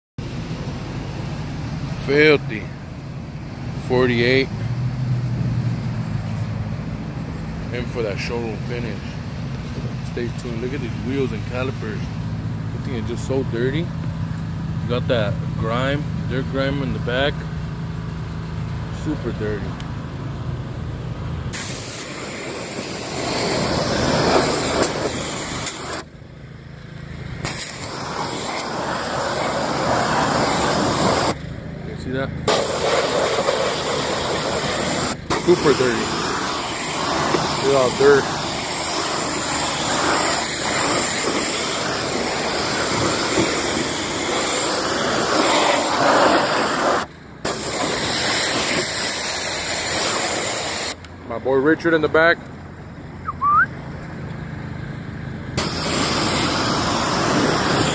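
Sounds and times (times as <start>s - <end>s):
pressure washer spraying: 21.5s - 26.1s, 27.4s - 31.4s, 32.5s - 51.0s, 55.6s - 57.9s.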